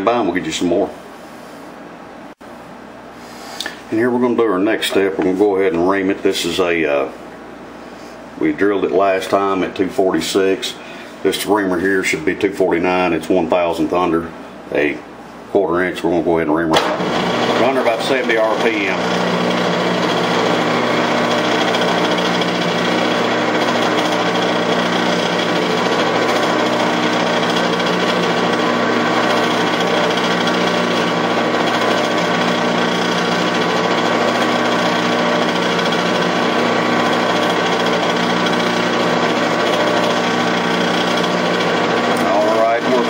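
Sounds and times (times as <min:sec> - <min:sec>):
metal lathe whirring: 0:16.8 - 0:43.0.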